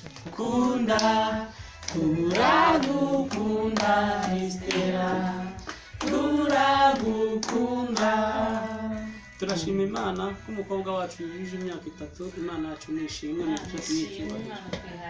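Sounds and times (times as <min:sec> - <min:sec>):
hand claps: 0:00.0 - 0:08.7, 0:09.4 - 0:10.4, 0:13.5 - 0:14.4
group of people singing: 0:00.0 - 0:10.6.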